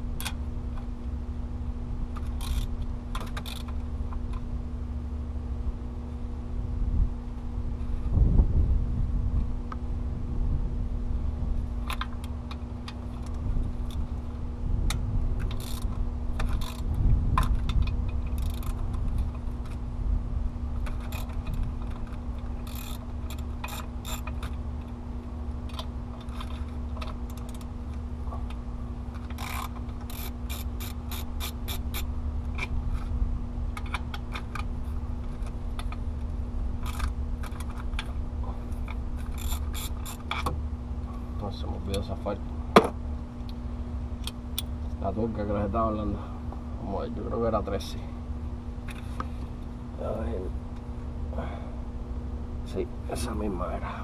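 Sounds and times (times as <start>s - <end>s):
steady low hum: 0.0s - 54.0s
ratchet wrench clicking: 2.2s - 3.8s, 15.4s - 19.3s, 20.8s - 24.6s, 29.2s - 32.7s, 36.8s - 37.8s, 39.2s - 40.5s.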